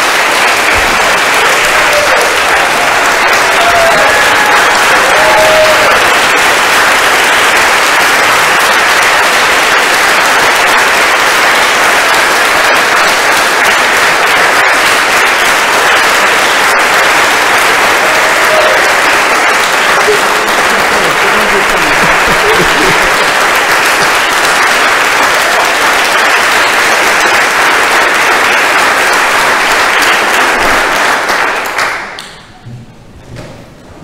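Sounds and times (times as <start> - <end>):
crowd applauding: 0.0 - 32.6.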